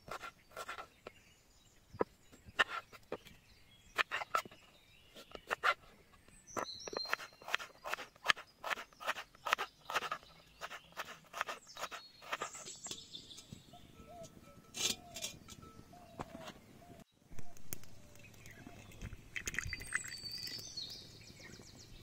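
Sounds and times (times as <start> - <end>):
birds chirping: 0.0 - 22.0
knife chopping on wooden board: 6.6 - 12.5.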